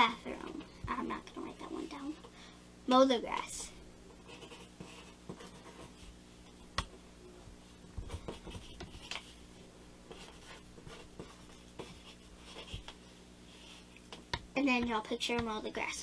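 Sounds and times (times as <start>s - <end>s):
pencil scratching on paper: 4.2s - 6.1s, 8.1s - 9.4s, 10.1s - 13.9s.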